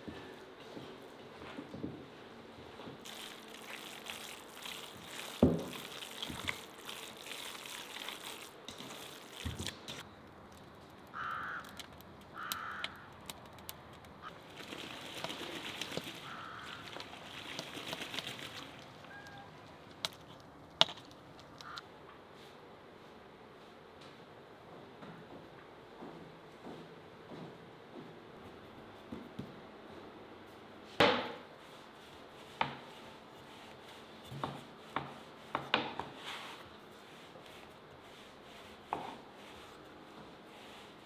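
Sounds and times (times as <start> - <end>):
harsh caw-like bird calls: 11.1 - 13.2, 16.2 - 17.0, 21.6 - 21.8.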